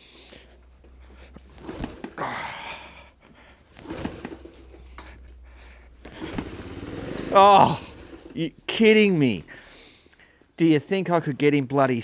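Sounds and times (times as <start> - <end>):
motorcycle engine turning over: 0.8 - 2.3, 3.6 - 8.8.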